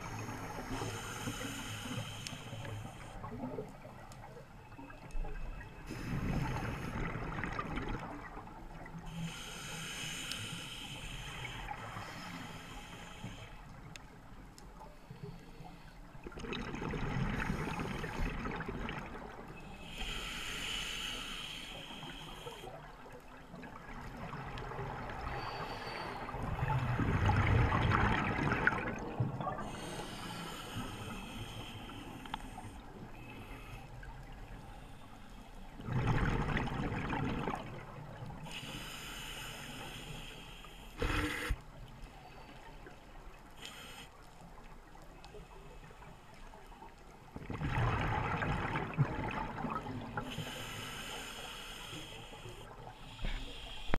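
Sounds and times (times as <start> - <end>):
regulator inhalation hiss: 0.0 - 3.2, 9.1 - 13.6, 19.8 - 22.8, 29.7 - 33.9, 38.5 - 41.6, 43.6 - 44.2, 50.3 - 53.9.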